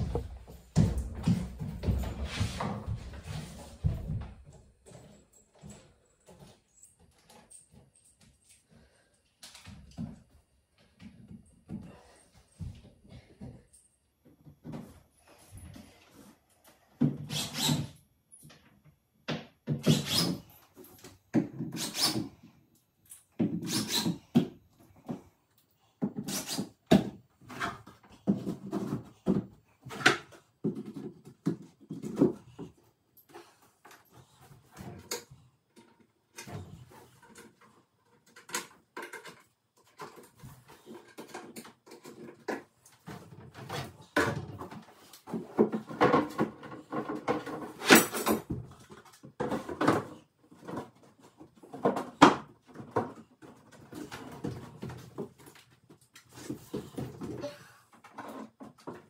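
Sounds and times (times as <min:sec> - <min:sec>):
furniture panels knocking and scraping: 0:00.0 - 0:05.1.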